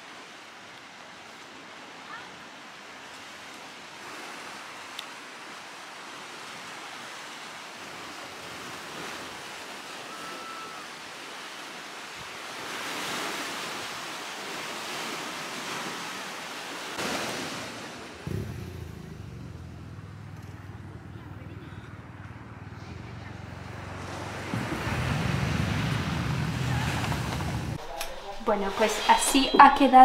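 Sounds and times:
surf rushing: 0:01.1 - 0:29.8
low steady rumble: 0:18.2 - 0:27.8.

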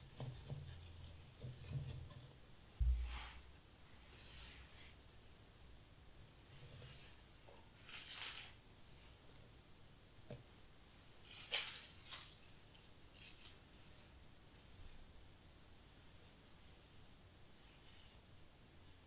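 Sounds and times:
dry grass stems rustling: 0:07.8 - 0:08.6, 0:11.2 - 0:14.1.

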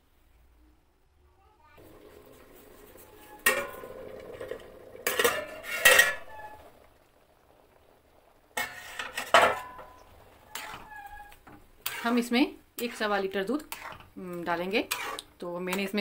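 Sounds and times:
steel lid clanking on pot: 0:03.3 - 0:04.0, 0:05.0 - 0:06.6, 0:08.6 - 0:10.9.

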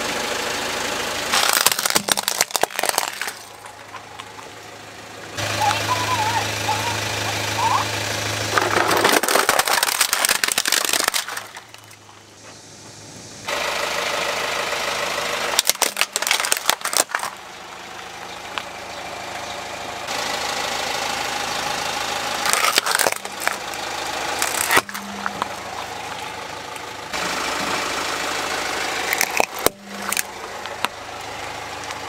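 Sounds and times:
car engine running: 0:00.0 - 0:32.0
plastic toys cracking under tyre: 0:01.3 - 0:04.6, 0:08.5 - 0:12.1, 0:15.5 - 0:17.4, 0:22.4 - 0:25.6, 0:29.0 - 0:31.0.

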